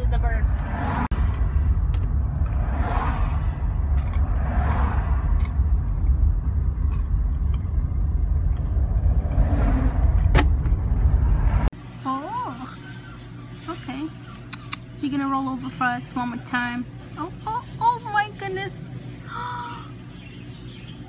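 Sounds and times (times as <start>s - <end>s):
car cabin low rumble: 0.0s - 11.7s.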